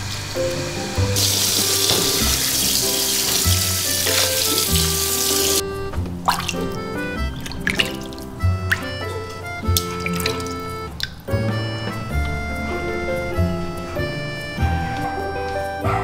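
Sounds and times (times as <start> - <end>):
shower spray running water: 0.0 - 5.6, 6.2 - 15.2
gentle background music: 0.0 - 16.0
water drips and splashes: 1.2 - 5.6, 6.2 - 11.5.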